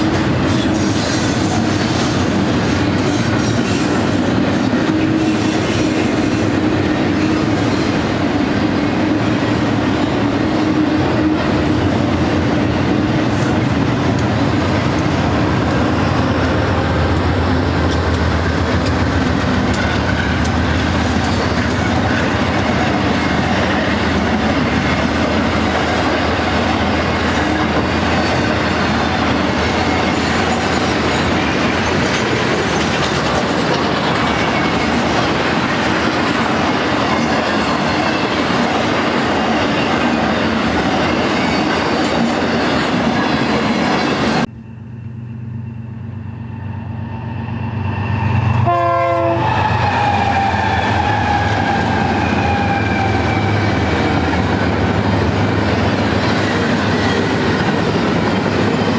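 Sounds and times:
train wheels rumbling on rail: 0.0 - 58.9
clicking over rail joints: 13.4 - 22.9.

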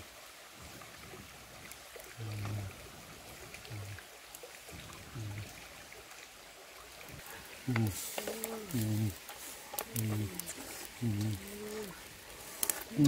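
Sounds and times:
stream running over rocks: 0.0 - 13.0
faint clicks: 7.0 - 13.0.

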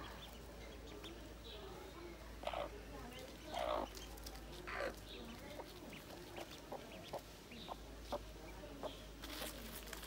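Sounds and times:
hen clucking: 2.4 - 2.8, 3.5 - 9.0.

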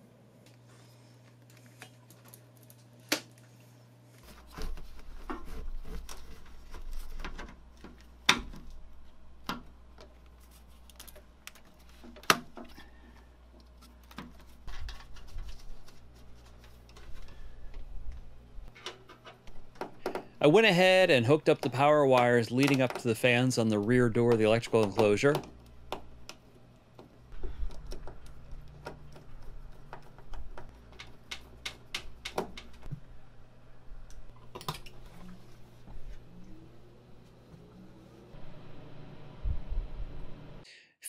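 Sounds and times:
plastic conduit clicks and rustling: 24.2 - 32.9.

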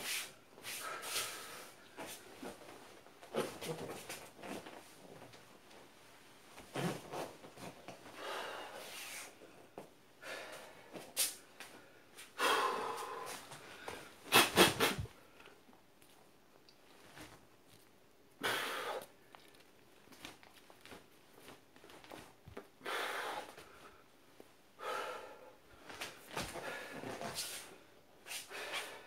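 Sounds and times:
mouth sounds: 14.3 - 15.1
man forcefully exhaling: 18.4 - 19.1.

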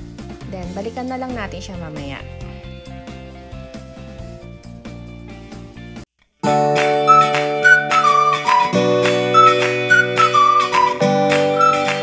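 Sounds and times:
music track: 6.4 - 12.0
plucked guitar music: 6.4 - 12.0.

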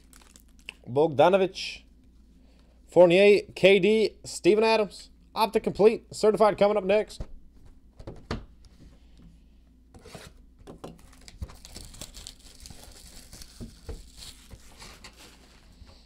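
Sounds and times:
cardboard boxes rustling: 12.7 - 15.8.

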